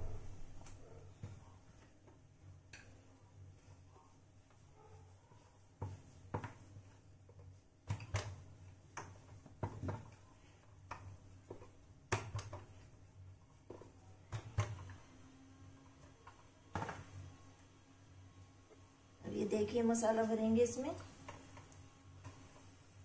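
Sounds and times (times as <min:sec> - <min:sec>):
rolling pin on wooden board: 0:05.4 - 0:15.0.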